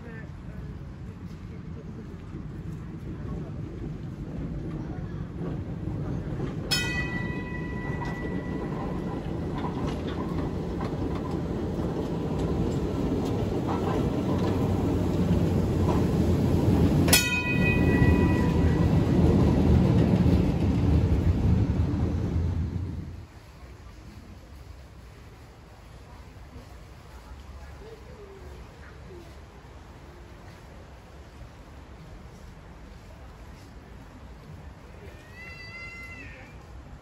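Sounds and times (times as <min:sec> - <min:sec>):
electric tram running on track: 0:00.0 - 0:37.0
tram bell strike: 0:06.7 - 0:11.4, 0:17.0 - 0:20.6.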